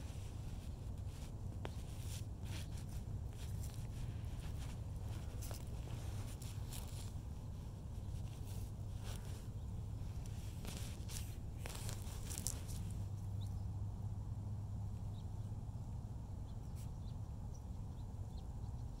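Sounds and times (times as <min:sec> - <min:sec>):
rustling: 0:00.0 - 0:13.4
steady low hum: 0:00.0 - 0:19.0.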